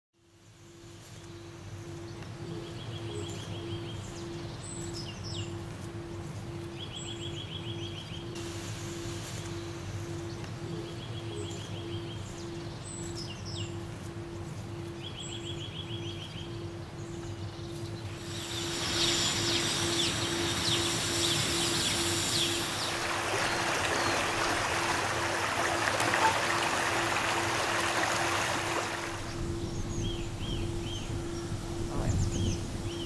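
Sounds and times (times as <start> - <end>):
low hum: 0.3 - 33.0
pulsing low tone: 1.0 - 27.6, 29.0 - 33.0
trilled chirp: 6.5 - 24.2
bird-like whistles: 18.3 - 24.5.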